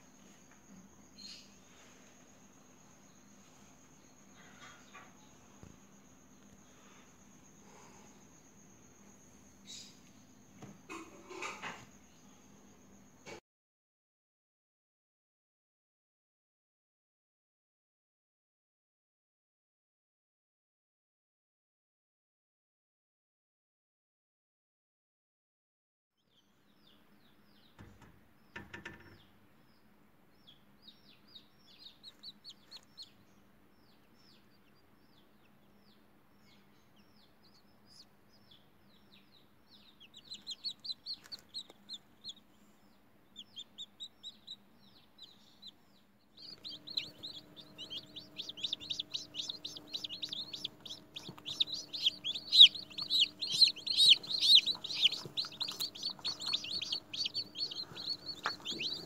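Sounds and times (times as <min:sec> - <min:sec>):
chicks peeping: 0:26.3 - 0:59.0
steady low hum: 0:40.0 - 0:59.0.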